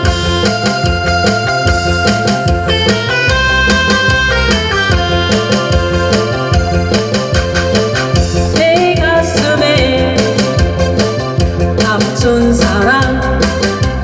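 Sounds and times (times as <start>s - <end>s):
accompaniment with drum beat: 0.0s - 14.0s
woman singing into a microphone: 8.5s - 10.9s, 11.7s - 14.0s.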